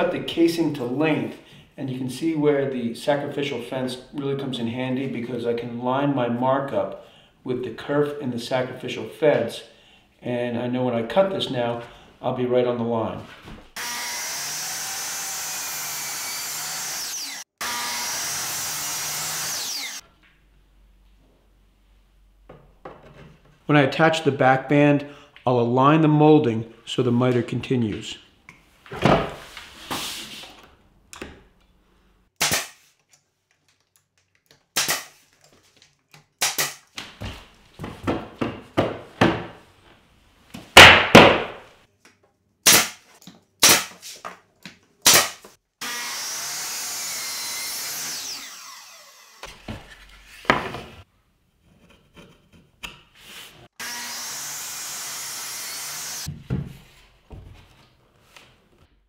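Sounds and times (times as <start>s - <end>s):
brad nailer firing: 32.4s - 32.9s, 34.8s - 35.2s, 36.4s - 37.0s, 40.8s - 41.7s, 42.6s - 44.1s, 45.0s - 46.0s.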